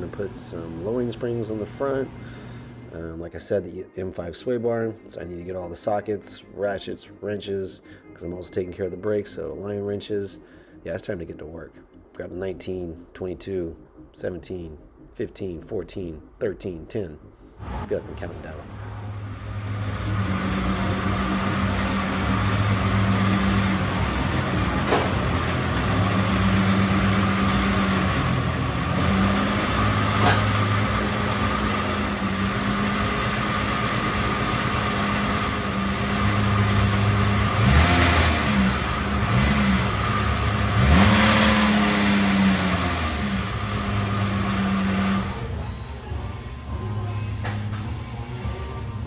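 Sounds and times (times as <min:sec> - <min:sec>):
car engine revving: 0:17.6 - 0:45.8
diesel car engine running: 0:17.8 - 0:48.8.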